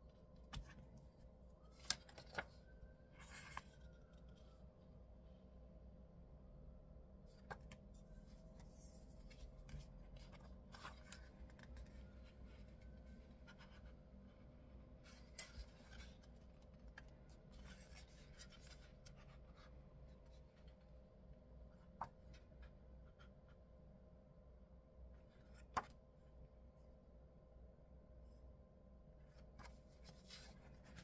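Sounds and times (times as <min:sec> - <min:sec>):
faint steady hum: 0:00.0 - 0:31.0
paper rustling: 0:01.7 - 0:02.6, 0:29.4 - 0:31.0.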